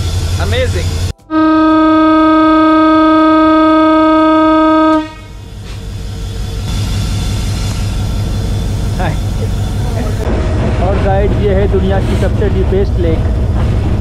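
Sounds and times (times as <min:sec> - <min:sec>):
locomotive air horn blast: 0:01.3 - 0:05.4
diesel engine idling: 0:03.5 - 0:14.0.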